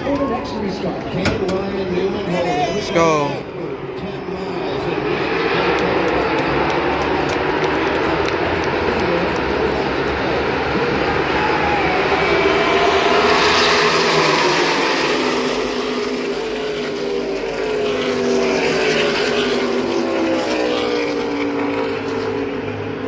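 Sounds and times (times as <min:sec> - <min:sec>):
race cars passing by: 0:00.0 - 0:23.0.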